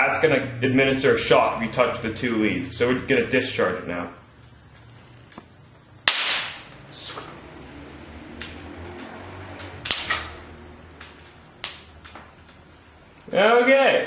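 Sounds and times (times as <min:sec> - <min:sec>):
capacitor discharging electric snap: 0:05.3 - 0:07.3, 0:08.4 - 0:12.6.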